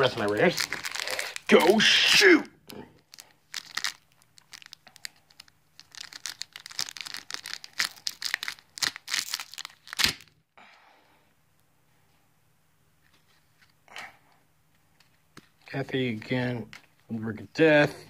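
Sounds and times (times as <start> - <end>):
foil pack crinkling and tearing: 0.0 - 1.8, 3.1 - 10.4.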